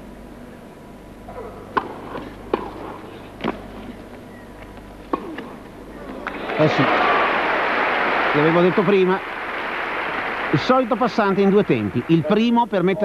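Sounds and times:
indoor crowd hum: 1.2 - 13.0
tennis ball off racket: 1.7 - 4.0.

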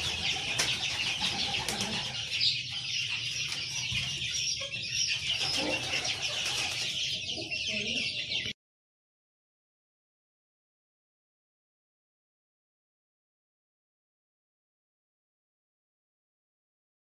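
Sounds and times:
hens clucking: 0.0 - 8.6.

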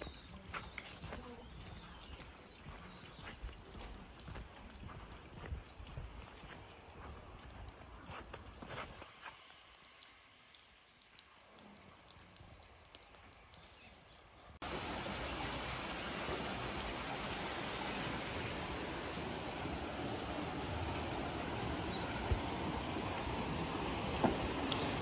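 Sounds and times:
stream rushing through stone channel: 14.6 - 25.0.

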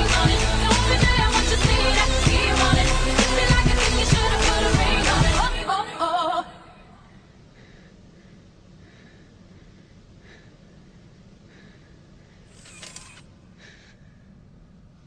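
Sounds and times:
people breathing: 7.0 - 12.6, 13.5 - 14.4.

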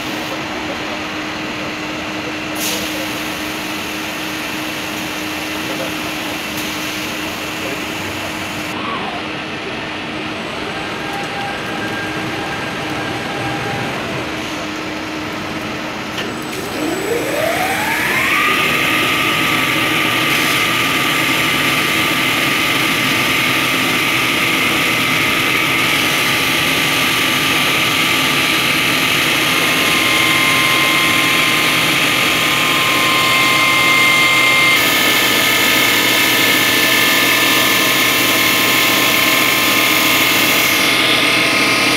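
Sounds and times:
saw blade motor whine: 16.4 - 41.9
stone saw machine hum: 16.5 - 41.9.

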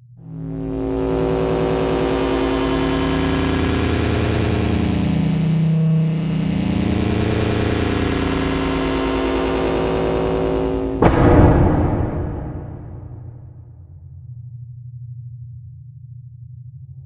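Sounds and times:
spaceship engine drone: 0.2 - 13.6.

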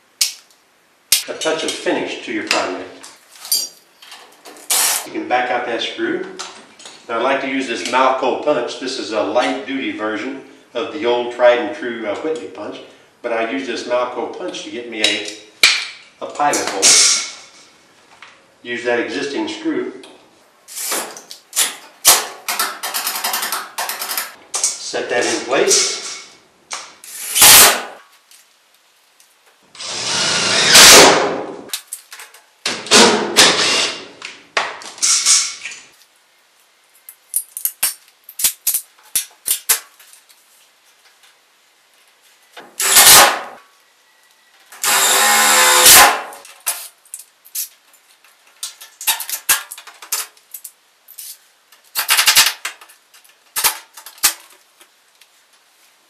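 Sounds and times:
cordless drill whirring: 29.8 - 30.9, 42.8 - 43.4, 44.8 - 46.2.

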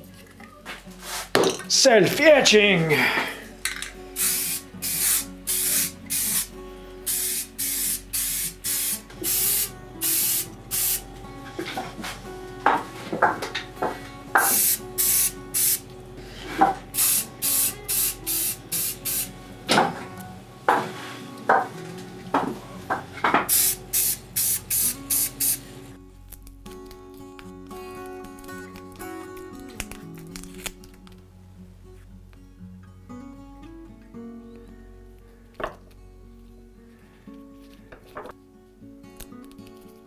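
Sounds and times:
spray paint can hissing: 4.2 - 11.0, 14.4 - 15.8, 17.0 - 19.3, 23.5 - 25.7.

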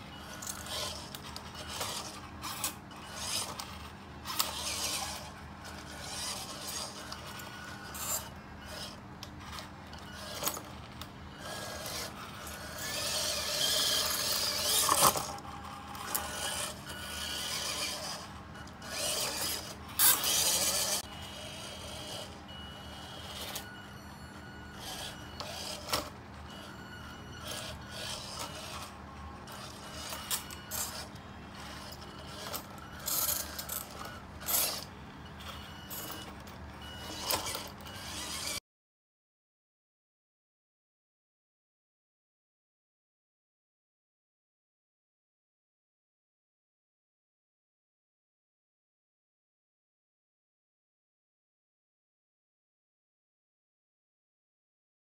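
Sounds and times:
toy car motor whining: 0.1 - 38.6.

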